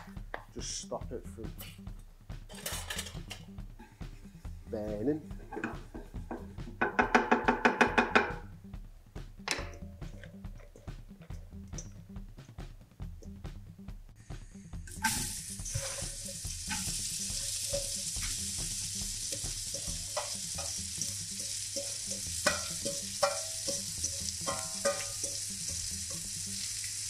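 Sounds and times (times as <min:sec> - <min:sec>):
knocks and scrapes of metal bowl: 0:05.4 - 0:08.4, 0:15.7 - 0:16.9, 0:21.8 - 0:25.4
food sizzling in frying pan: 0:14.8 - 0:27.0.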